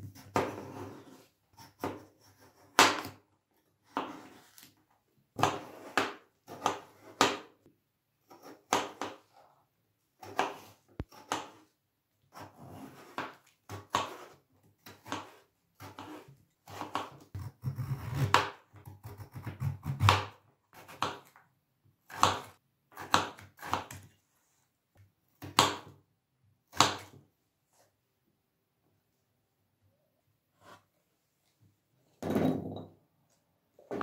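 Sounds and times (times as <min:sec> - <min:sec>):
knife cutting potato on board: 0:00.0 - 0:03.2, 0:03.8 - 0:04.7, 0:05.4 - 0:07.5, 0:08.2 - 0:09.4, 0:10.2 - 0:11.7, 0:12.3 - 0:21.4, 0:22.0 - 0:24.2, 0:26.7 - 0:27.8.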